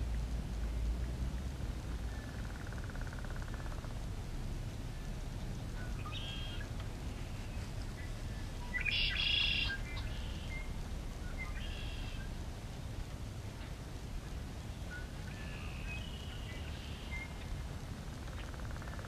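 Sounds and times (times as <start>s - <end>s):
low steady rumble: 0.0s - 19.0s
high bird-like twittering: 8.6s - 10.7s.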